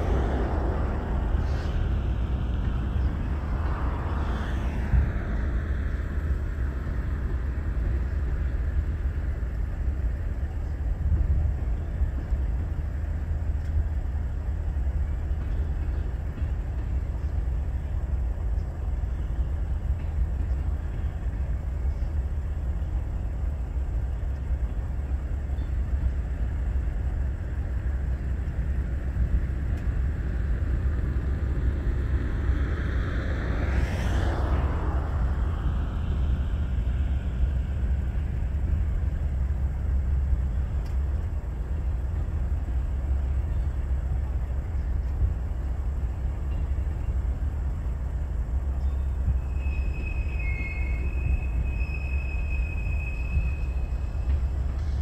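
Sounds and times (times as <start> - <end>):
rising sweep: 0.0 - 7.2, 30.4 - 39.1
low outdoor rumble: 0.0 - 55.0.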